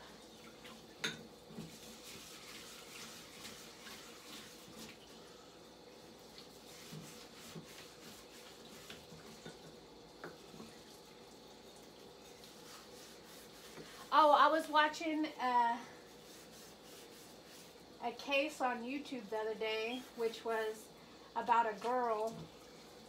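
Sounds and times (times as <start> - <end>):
water running: 0.0 - 23.0
dishes and cutlery clinking: 1.0 - 1.3.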